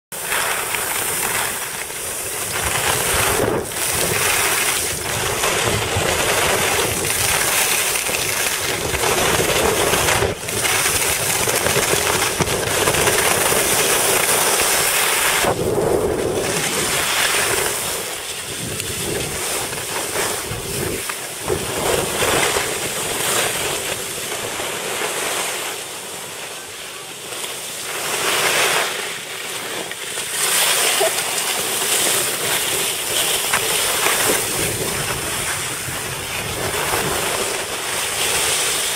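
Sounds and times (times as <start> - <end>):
skis scraping on packed snow: 0.1 - 38.9
wind rushing over microphone: 0.5 - 24.6, 32.3 - 38.9.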